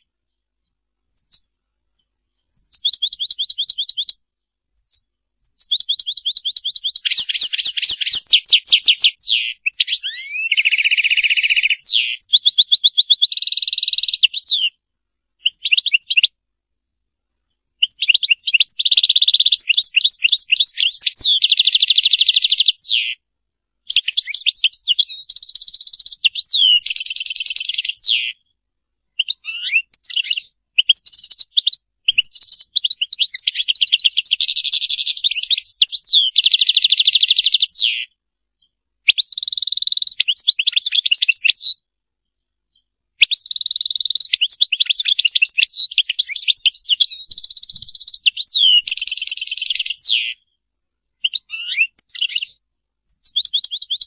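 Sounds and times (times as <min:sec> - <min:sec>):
goldfinch twittering and trilling: 0:04.8 - 0:14.6, 0:29.2 - 0:38.0, 0:43.4 - 0:50.4, 0:51.2 - 0:54.0.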